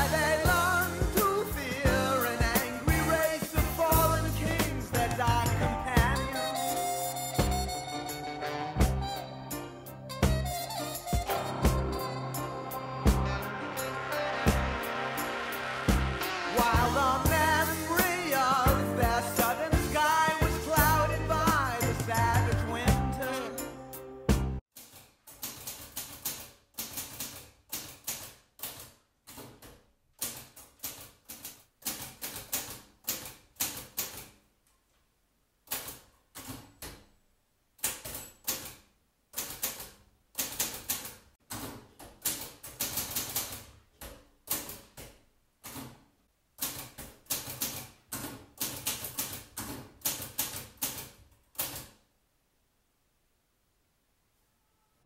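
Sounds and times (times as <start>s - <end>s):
typewriter keys clicking: 24.8s - 34.4s, 37.8s - 41.2s, 42.2s - 43.7s, 46.6s - 52.0s.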